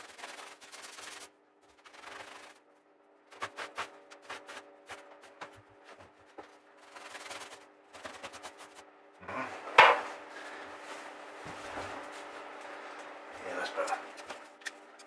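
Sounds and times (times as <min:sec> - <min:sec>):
steady scuffing: 0:10.5 - 0:12.4.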